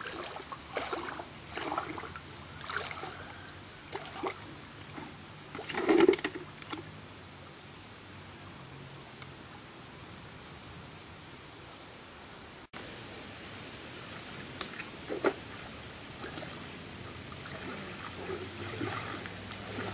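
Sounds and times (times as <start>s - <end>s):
water sloshing and splashing: 0.0s - 6.9s, 14.2s - 19.9s.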